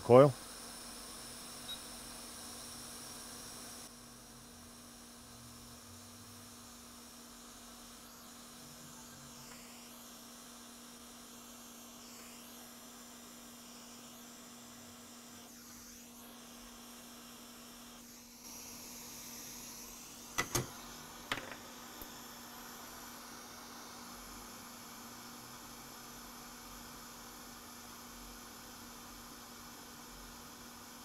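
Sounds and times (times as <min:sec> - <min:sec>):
electrical hum and hiss: 0:00.0 - 0:31.0.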